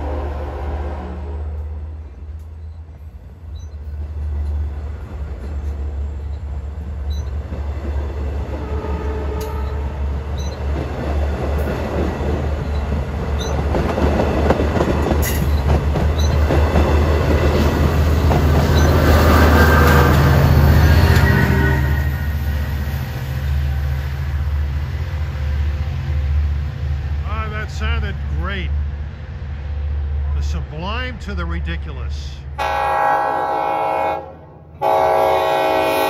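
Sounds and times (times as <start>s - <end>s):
deep rumble of train: 0.0s - 36.0s
diesel locomotive passing: 0.0s - 36.0s
train wheels clattering over rails: 9.3s - 21.4s.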